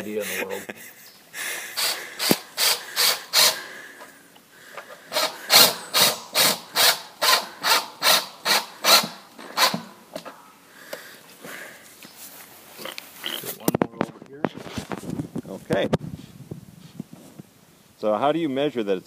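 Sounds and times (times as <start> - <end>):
drill bit rasping in plastic: 1.8 - 3.6, 5.1 - 9.9.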